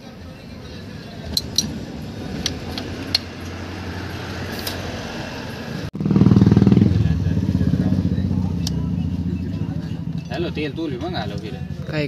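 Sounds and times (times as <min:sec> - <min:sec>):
loud engine running: 0:00.4 - 0:12.0
metallic clicks of brake parts: 0:01.3 - 0:01.8, 0:02.4 - 0:03.6.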